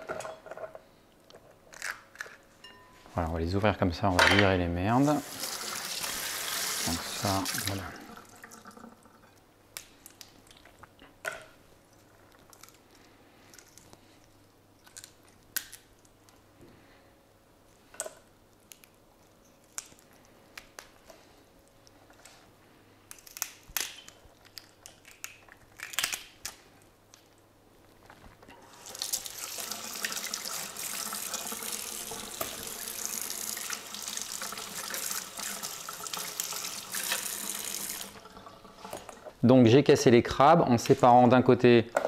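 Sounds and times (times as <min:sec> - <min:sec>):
kitchen tap running: 0:05.0 - 0:09.2, 0:28.6 - 0:39.4
crab shells cracking: 0:14.8 - 0:16.4, 0:19.6 - 0:21.0, 0:23.0 - 0:27.4.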